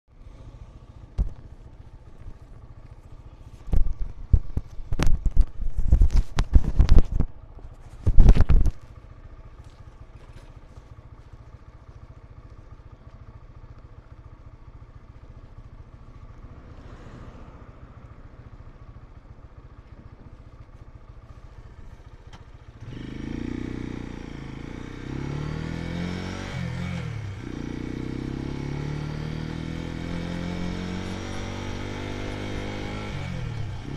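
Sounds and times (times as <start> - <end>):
motorcycle engine idling and accelerating: 0.0 - 33.9.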